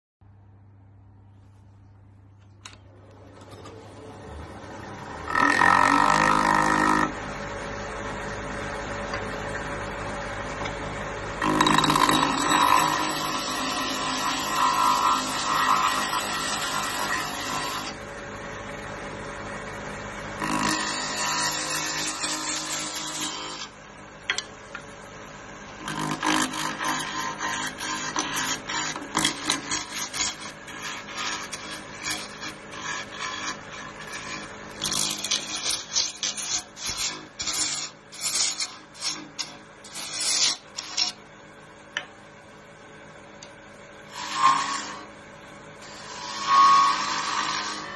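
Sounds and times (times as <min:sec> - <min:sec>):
wood lathe running: 0:04.5 - 0:18.9, 0:20.3 - 0:24.4, 0:25.8 - 0:41.1, 0:44.1 - 0:45.1, 0:45.8 - 0:47.9.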